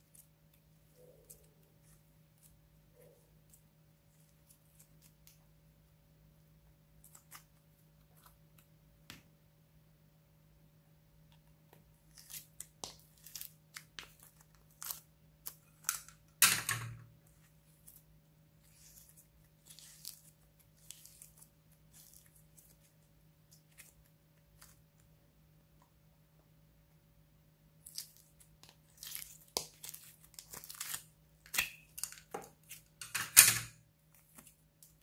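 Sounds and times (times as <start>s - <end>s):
slime crackling and tearing: 27.8s - 32.9s.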